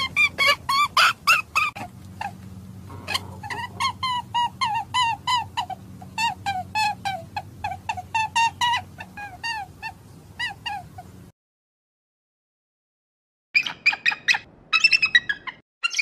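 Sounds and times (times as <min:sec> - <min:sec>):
high-pitched animal calls: 0:00.0 - 0:11.2, 0:13.6 - 0:16.0
steady low hum: 0:00.0 - 0:11.3.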